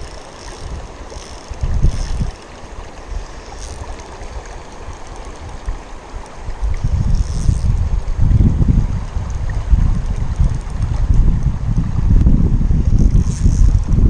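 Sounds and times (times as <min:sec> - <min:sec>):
wind buffeting microphone: 0:00.0 - 0:02.4, 0:06.4 - 0:14.0
river water flowing over stones: 0:00.0 - 0:14.0.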